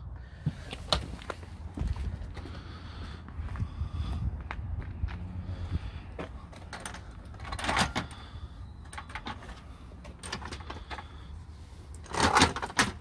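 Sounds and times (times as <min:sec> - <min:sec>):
steady low rumble: 0:00.0 - 0:12.2.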